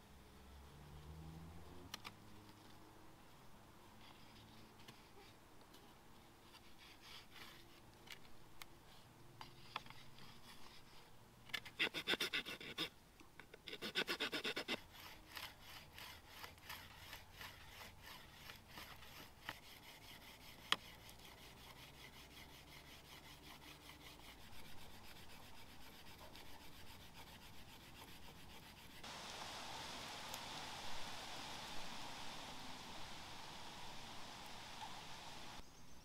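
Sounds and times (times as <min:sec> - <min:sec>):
wood being sawn by hand: 0:11.6 - 0:12.9, 0:13.5 - 0:29.1.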